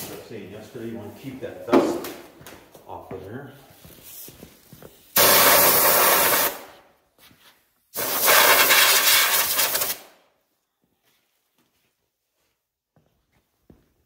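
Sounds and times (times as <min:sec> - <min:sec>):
air blow gun hissing blasts: 0:05.2 - 0:06.7, 0:08.0 - 0:10.1.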